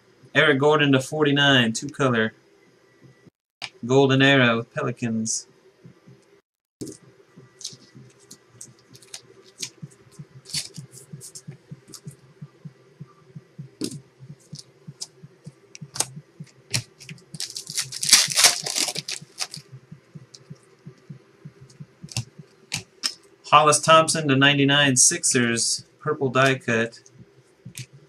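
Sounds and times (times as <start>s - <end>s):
low hum: 1.2s - 28.0s
trading cards clicking and tapping: 6.8s - 12.2s, 13.7s - 23.2s
card pack wrapper tearing: 17.4s - 19.6s.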